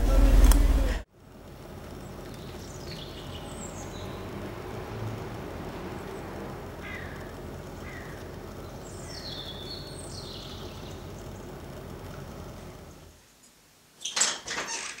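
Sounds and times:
low background hum: 0.0 - 13.3
birds calling: 1.8 - 13.1.

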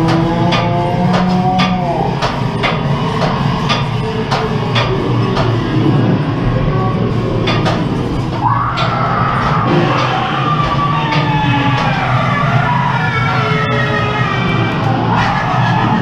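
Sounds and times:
sharp knocks: 0.0 - 5.6, 7.4 - 9.0
ride car clattering on track: 0.0 - 12.5.

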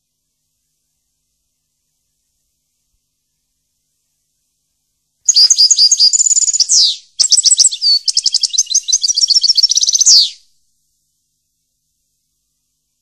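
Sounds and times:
songbird singing: 5.3 - 10.6.

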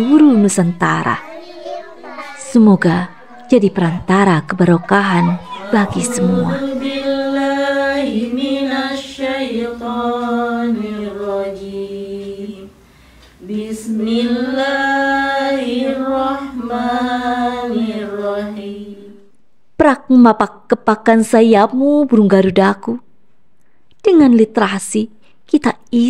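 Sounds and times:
women chanting melodically: 2.5 - 12.8, 13.4 - 19.3.

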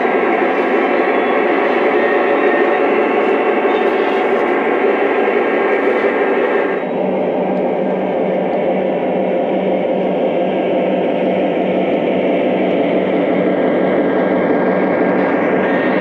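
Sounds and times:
model train cars rolling on track: 0.0 - 9.2
pulsing diesel sound effect hum: 0.0 - 16.0.

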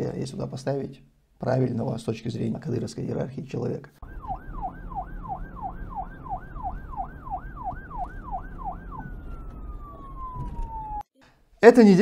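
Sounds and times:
emergency siren yelping: 4.0 - 11.1.

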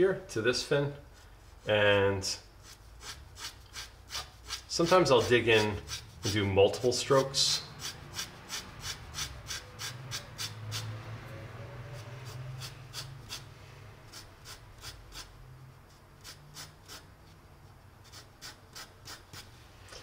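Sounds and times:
pencil scratching on paper: 2.6 - 6.5, 7.1 - 10.9, 11.8 - 13.5, 14.1 - 17.1, 18.0 - 19.5.

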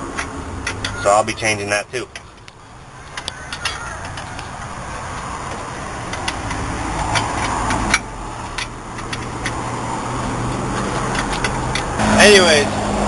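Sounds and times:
wrench clicking and scraping: 0.0 - 1.1, 2.1 - 12.0.

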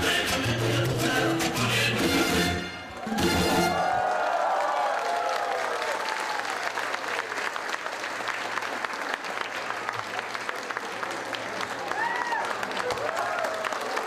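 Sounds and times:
audience applauding: 2.9 - 14.0.

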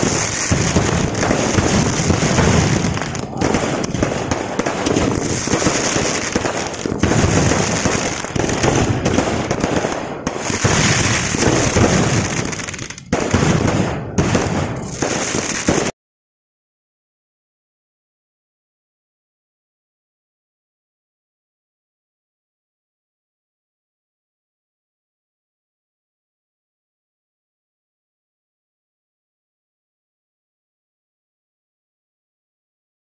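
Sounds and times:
fireworks bursting and crackling: 0.0 - 16.0.

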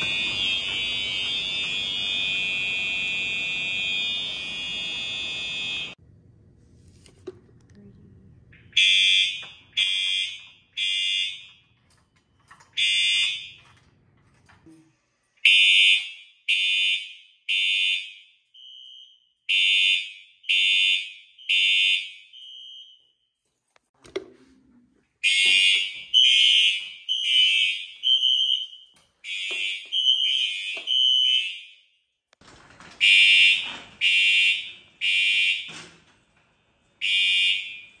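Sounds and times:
fire alarm horn blasts: 0.0 - 6.0, 8.7 - 11.8, 12.7 - 13.8, 15.4 - 23.3, 25.2 - 32.0, 33.0 - 36.0, 37.0 - 38.0.

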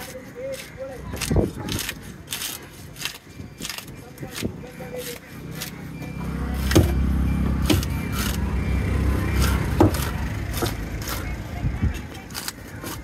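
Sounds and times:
engine running: 5.3 - 11.6
knife chopping fish on wood: 6.6 - 7.0, 7.6 - 8.4, 9.4 - 11.2.

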